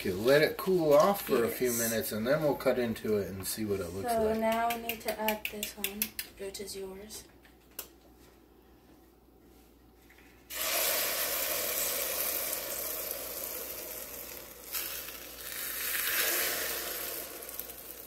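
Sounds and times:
egg sizzling on hot plates: 10.4s - 18.0s.

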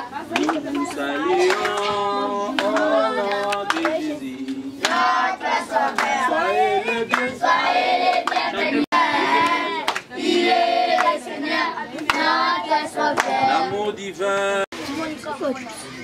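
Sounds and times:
group of voices singing: 0.0s - 14.8s
hand claps: 0.3s - 5.1s, 5.9s - 6.2s, 7.1s - 7.3s, 8.1s - 8.5s, 9.4s - 10.1s, 11.9s - 12.3s, 13.2s - 13.4s.

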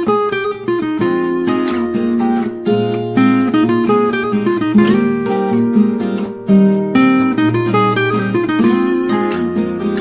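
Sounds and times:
acoustic guitar music: 0.0s - 10.0s.

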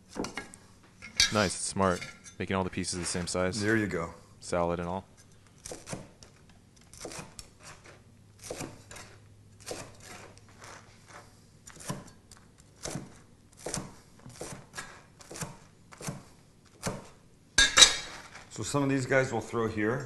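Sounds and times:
knife cutting crunchy bread: 5.5s - 17.2s.

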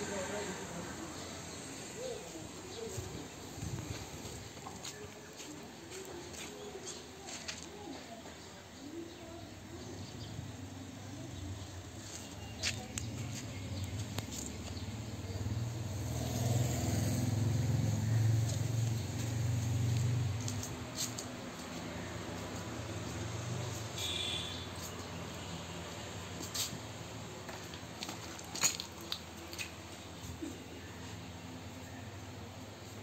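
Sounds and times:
faint voices: 0.0s - 16.0s.

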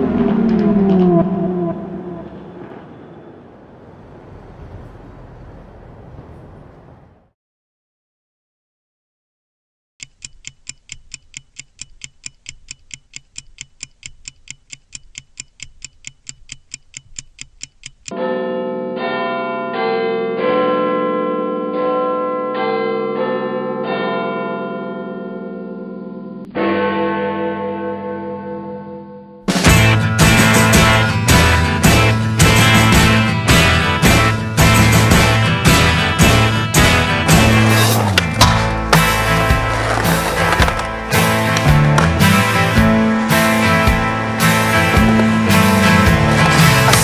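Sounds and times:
stopwatch ticking: 10.0s - 18.1s
guitar music: 26.5s - 47.0s.

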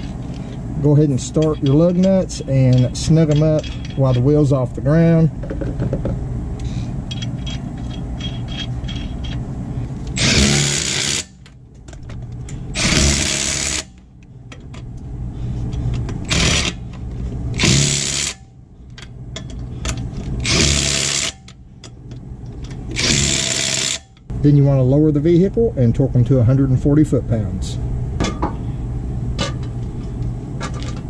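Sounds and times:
impact wrench bursts: 10.2s - 11.4s, 12.7s - 14.0s, 16.2s - 16.8s, 17.6s - 18.5s, 19.8s - 21.6s, 22.9s - 24.2s.

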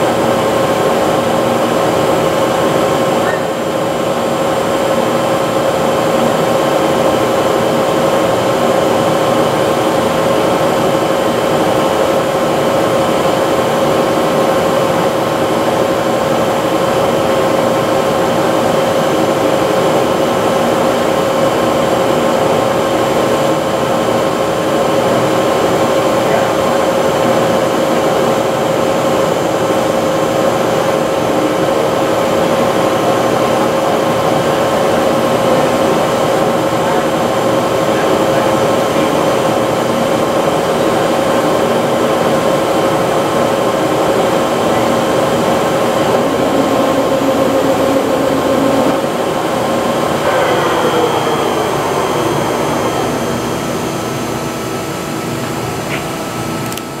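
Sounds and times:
lathe spindle drive whine: 0.0s - 57.0s.

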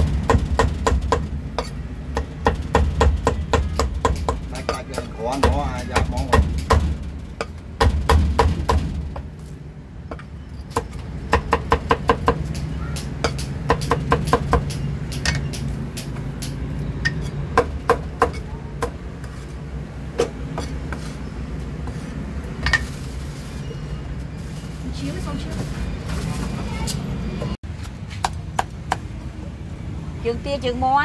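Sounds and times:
cleaver chopping on wooden block: 0.0s - 8.9s, 10.8s - 16.6s
street traffic rumble: 0.0s - 31.0s.

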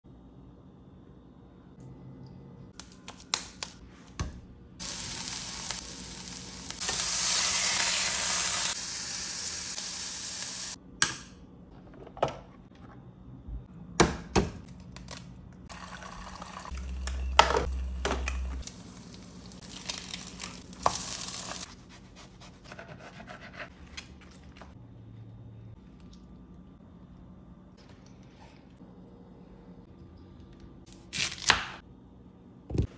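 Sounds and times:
food sizzling in a pan: 4.8s - 10.8s, 18.7s - 21.7s.

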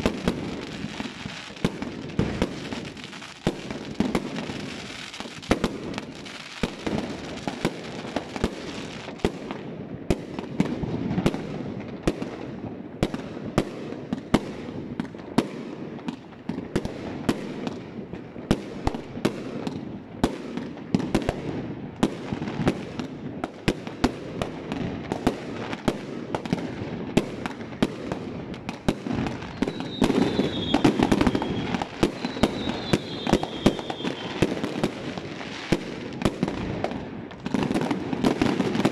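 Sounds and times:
fireworks bangs and crackles: 0.0s - 38.9s
high firework whistles: 29.0s - 36.6s.

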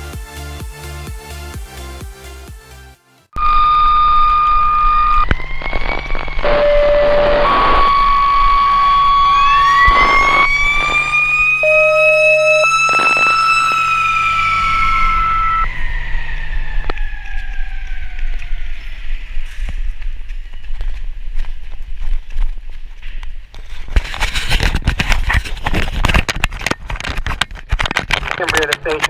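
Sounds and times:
mechanical siren winding: 3.4s - 19.2s
high siren tones switching pitch: 3.4s - 20.1s.

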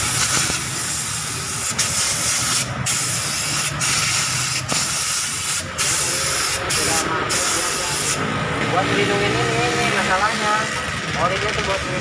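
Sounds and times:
pressurised spray hissing: 0.0s - 8.3s.

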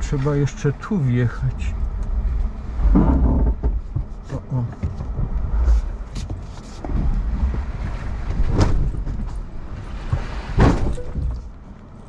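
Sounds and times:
truck rumbling over dirt: 0.0s - 12.0s
truck hitting tree bangs: 10.1s - 11.4s.

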